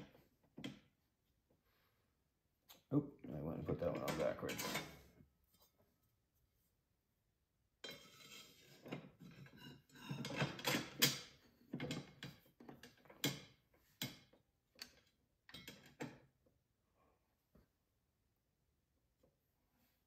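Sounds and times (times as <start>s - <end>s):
metal blades clinking and scraping: 7.8s - 10.4s.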